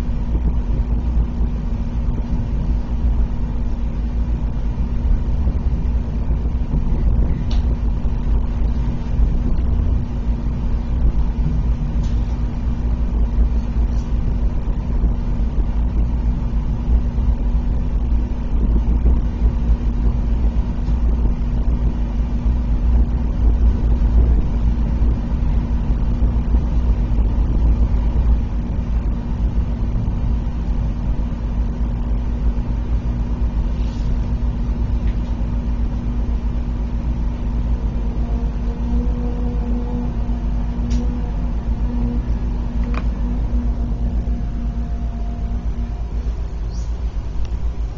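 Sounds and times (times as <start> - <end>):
constant hum: 0.0 - 47.9
train rumble inside carriage: 0.0 - 47.9.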